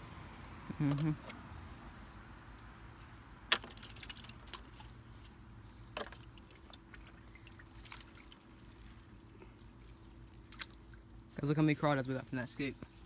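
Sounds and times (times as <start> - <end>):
water dripping and trickling: 3.6 - 9.4.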